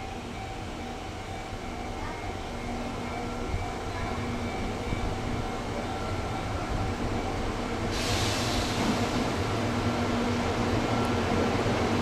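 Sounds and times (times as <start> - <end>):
train rumbling past: 0.0 - 12.0.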